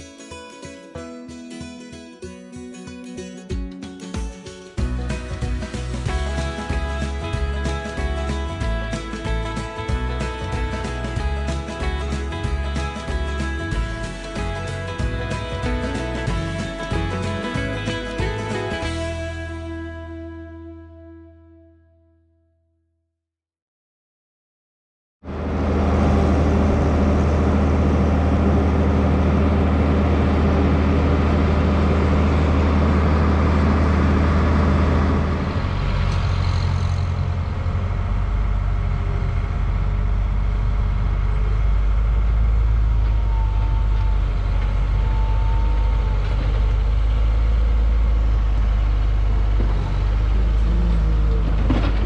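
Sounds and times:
skid steer loader working: 0:04.8 - 0:19.5, 0:25.3 - 0:52.0
tractor diesel engine idling: 0:25.3 - 0:52.0.

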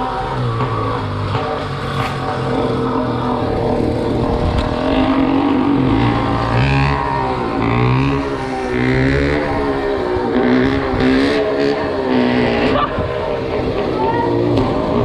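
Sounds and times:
road noise: 0:00.0 - 0:15.0
wind noise: 0:03.4 - 0:06.3, 0:12.5 - 0:15.0.

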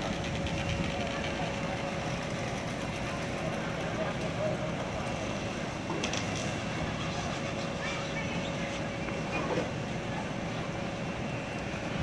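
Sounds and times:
constant hum: 0:00.0 - 0:12.0
diesel engine rumble: 0:00.0 - 0:12.0.

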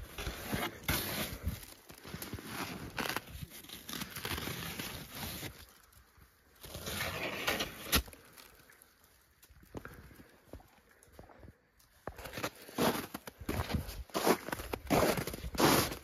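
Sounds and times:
snow crunching: 0:00.0 - 0:05.9, 0:12.0 - 0:16.0.

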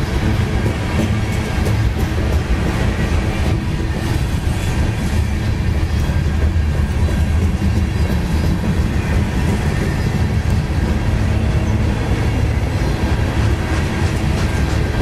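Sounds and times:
freight train wheels rumbling: 0:00.0 - 0:15.0.

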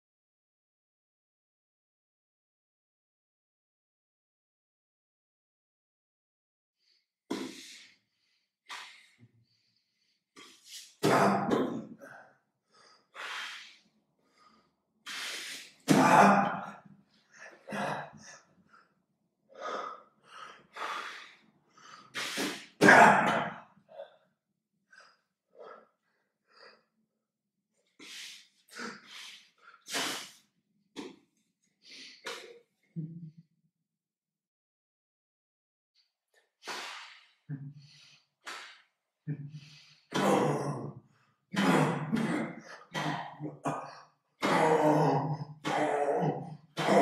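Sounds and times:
man breathing and puffing air: 0:15.1 - 0:16.2, 0:20.5 - 0:22.8, 0:28.0 - 0:30.4
breathy vocal sounds: 0:41.6 - 0:47.0.

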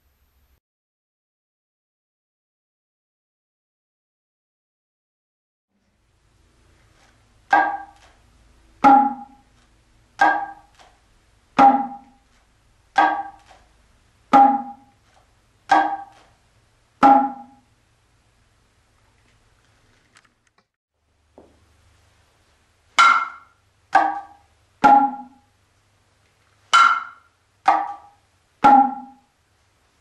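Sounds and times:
shoulder drum strokes: 0:08.7 - 0:09.5, 0:17.0 - 0:17.7, 0:23.0 - 0:25.4.

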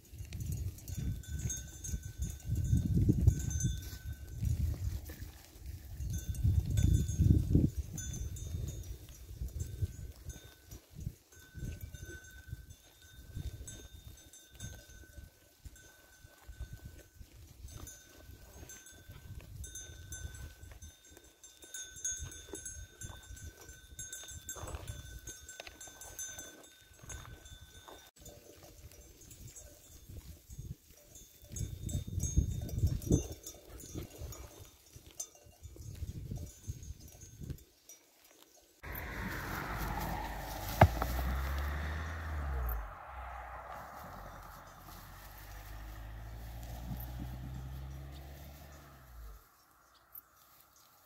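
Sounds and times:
sheep bells ringing: 0:00.0 - 0:51.0
low rumble: 0:38.8 - 0:50.2.

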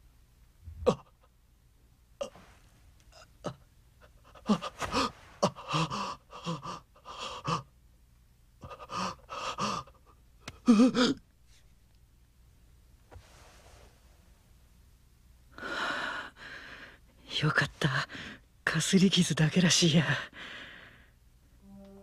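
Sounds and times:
young man gasping and panting: 0:03.5 - 0:07.7.

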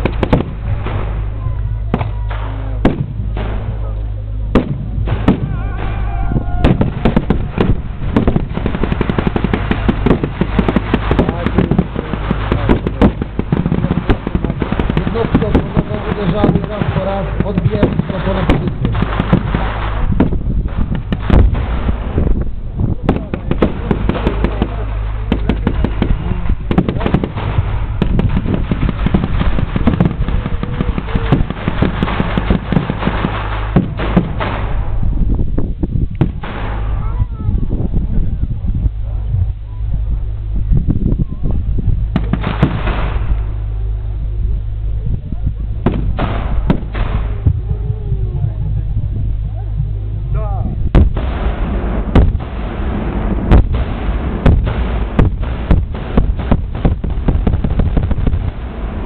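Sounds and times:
gunfire sharp cracks: 0:00.0 - 0:01.3, 0:01.9 - 0:03.9, 0:04.5 - 0:22.3, 0:23.1 - 0:34.9, 0:36.2 - 0:36.9, 0:42.2 - 0:43.5, 0:45.8 - 0:47.4, 0:51.0 - 0:59.0
rapid rifle and machine gun fire: 0:00.0 - 0:03.9, 0:04.5 - 0:22.4, 0:23.0 - 0:35.0, 0:36.2 - 0:37.1, 0:42.2 - 0:43.6, 0:45.8 - 0:47.6, 0:51.0 - 0:59.0
steady low rumble: 0:00.0 - 0:59.0.

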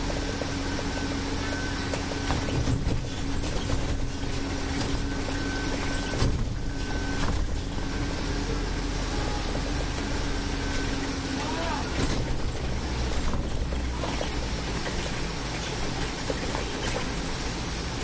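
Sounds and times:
bus engine humming: 0:00.0 - 0:18.0
knocks and rattles: 0:02.2 - 0:07.8.

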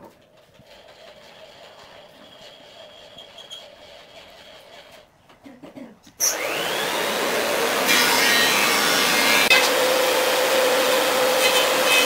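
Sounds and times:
power tool motor whine: 0:06.2 - 0:12.0.

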